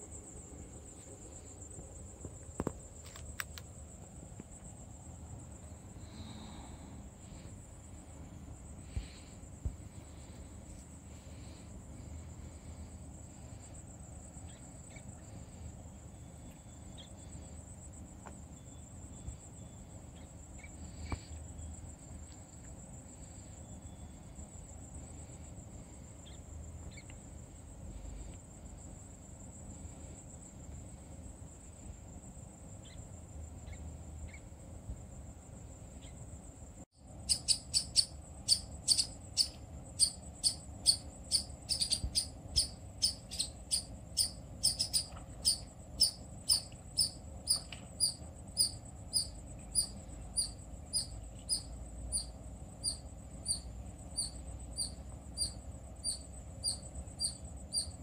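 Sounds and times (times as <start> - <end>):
insect chorus trilling: 0.0 - 58.0
sharp clicks: 2.6 - 3.7.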